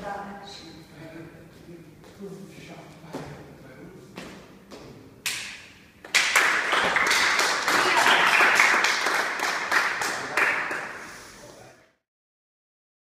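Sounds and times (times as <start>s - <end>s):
small group clapping: 5.2s - 11.2s.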